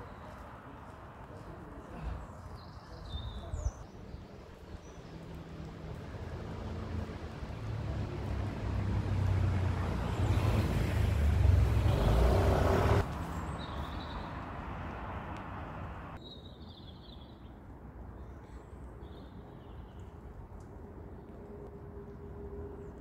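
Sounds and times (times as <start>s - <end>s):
traffic hum: 0.0s - 16.2s
vehicle passing by: 5.4s - 16.2s.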